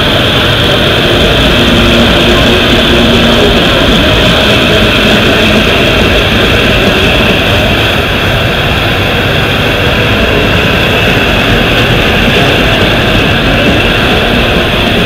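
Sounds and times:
steady whistle: 0.0 - 8.3
gas turbine engine roar: 0.0 - 15.0.

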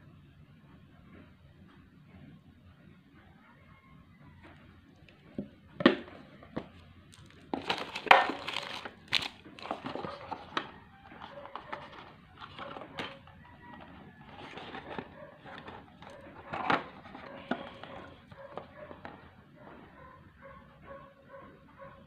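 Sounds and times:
crinkling rustles: 6.2 - 19.3.

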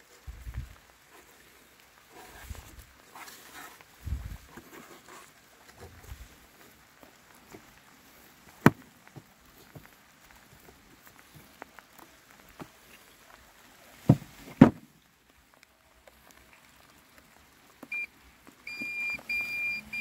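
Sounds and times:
heavy thumps on grass: 14.0 - 14.9
longer steady beeps: 17.9 - 18.1, 18.7 - 20.0
short high beep: 18.7 - 20.0.

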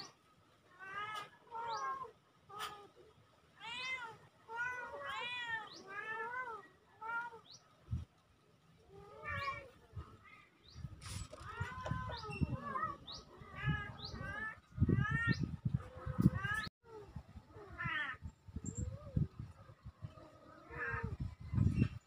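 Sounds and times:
kittens meowing: 11.3 - 16.7.

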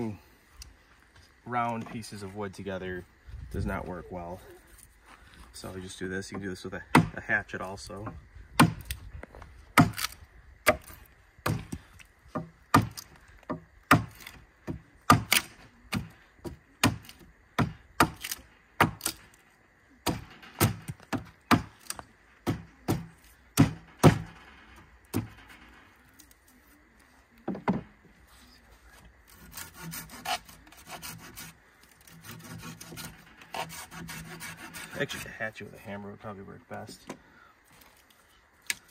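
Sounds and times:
sharp wooden knocks: 10.7 - 17.0, 20.0 - 21.8, 22.4 - 24.5, 25.1 - 25.7, 27.5 - 27.9
rasping scrapes on wood: 29.3 - 35.3.

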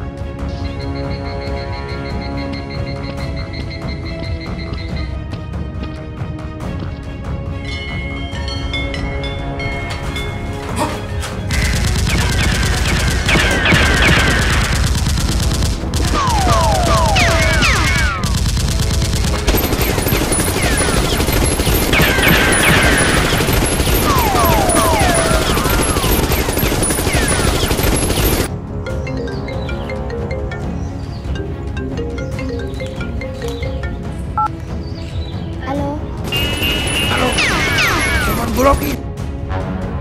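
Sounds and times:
background music: 0.0 - 40.0
automatic gunfire: 11.5 - 28.5, 36.2 - 39.0.

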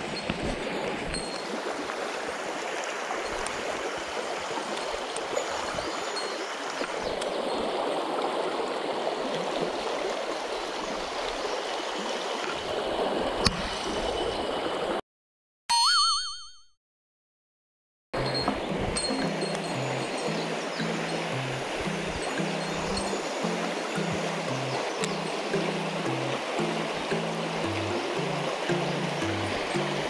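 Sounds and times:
stream water rushing: 0.0 - 15.0, 18.2 - 30.0
wavering musical jingle: 18.2 - 30.0.

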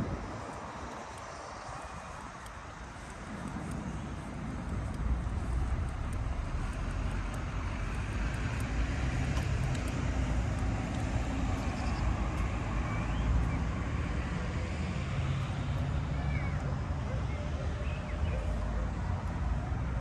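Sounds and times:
distant road traffic rumble: 0.0 - 20.0
bird chirp: 11.6 - 13.7.

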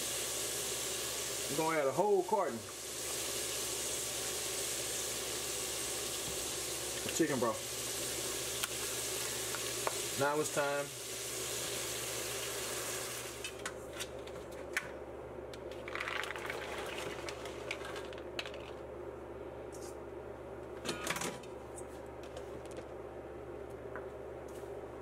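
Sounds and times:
broth pouring into hot pot hissing: 0.0 - 13.4, 16.0 - 17.8
beans clattering into a pot: 15.7 - 18.8.

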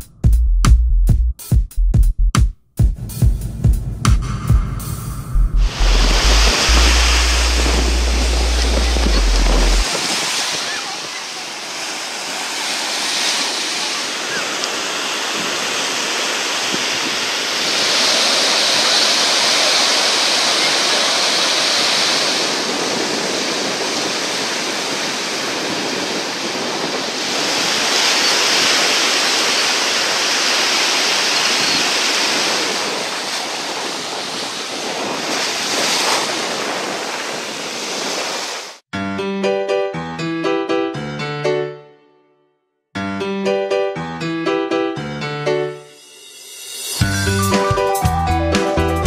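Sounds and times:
piano music: 4.2 - 9.8, 38.9 - 46.4, 47.0 - 49.0
waves breaking on shore: 5.6 - 38.8.

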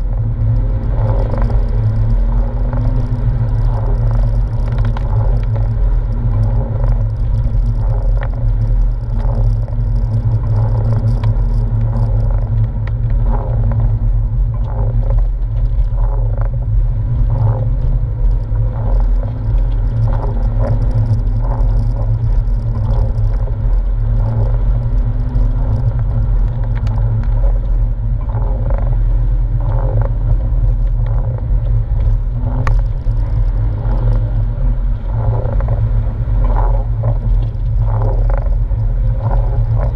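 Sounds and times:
car engine low rumble: 0.0 - 39.9.

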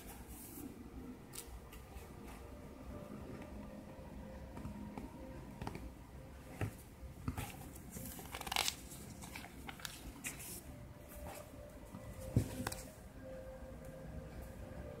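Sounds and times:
glossy paper pages rustling: 7.2 - 11.6.

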